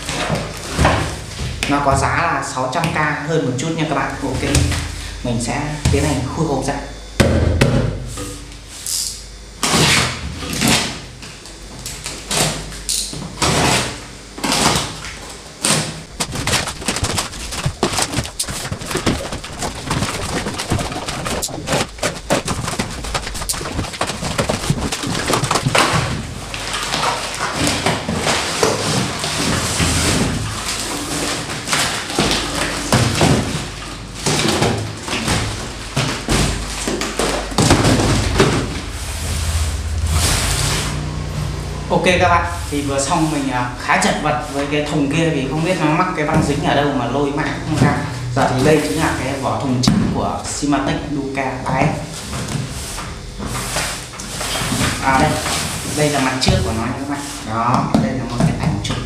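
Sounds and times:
blade scraping along packing tape: 15.6s - 33.0s
tape and cardboard ripping: 15.6s - 33.4s
box flaps knocking and thumping: 16.1s - 26.2s.

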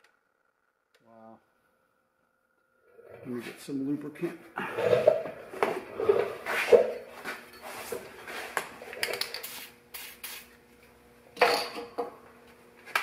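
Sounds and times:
aerosol can spraying: 9.2s - 10.6s.

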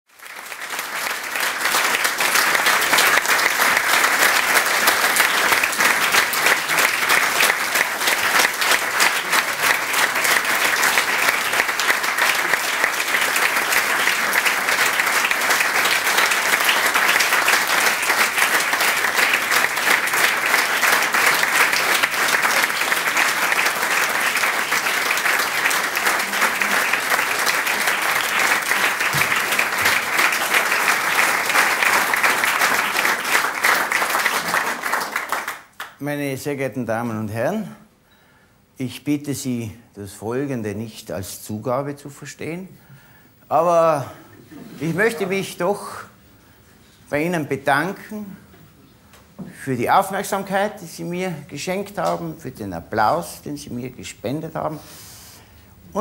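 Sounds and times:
audience applauding: 0.1s - 36.0s.

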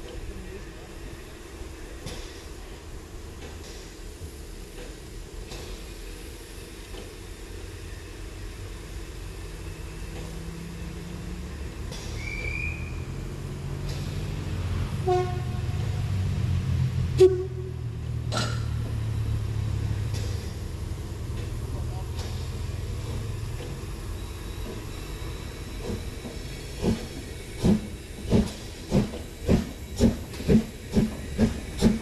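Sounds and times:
steam locomotive rumble: 0.0s - 32.0s.

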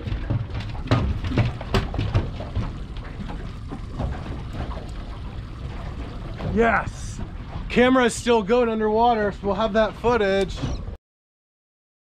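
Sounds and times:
knocks and thuds against boat: 0.0s - 8.7s
low rumble: 0.0s - 10.4s.

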